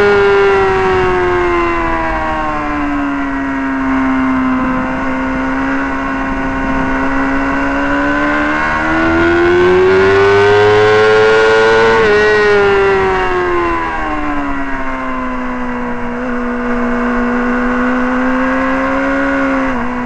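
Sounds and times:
motorcycle engine at racing speed: 0.0 - 20.0.

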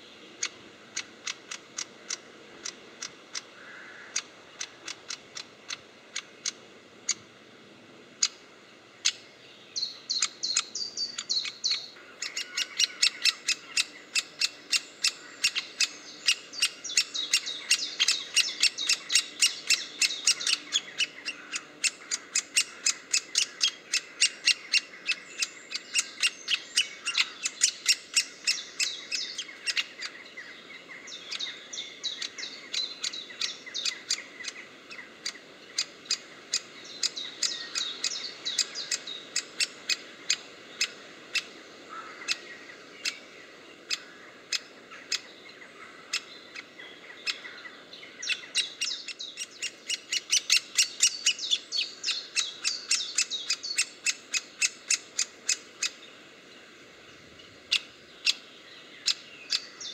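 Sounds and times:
woodpecker nestling clicky calls: 0.4 - 7.2, 8.2 - 8.4, 9.0 - 30.2, 31.0 - 43.2, 43.9 - 45.3, 46.1 - 47.6, 48.2 - 56.0, 57.7 - 58.4, 59.0 - 59.9.

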